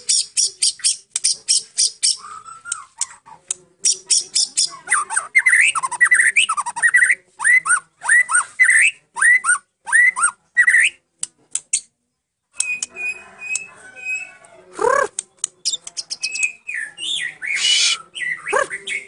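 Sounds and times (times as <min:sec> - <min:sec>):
songbird singing whistles and clicks: 0:00.1 - 0:04.7, 0:12.5 - 0:13.7, 0:14.4 - 0:18.6.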